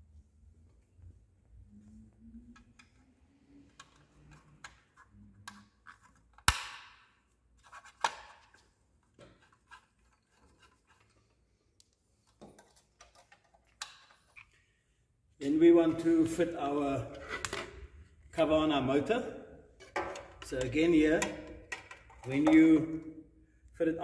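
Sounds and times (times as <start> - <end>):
light clicks and scrapes: 9.4 - 14.6.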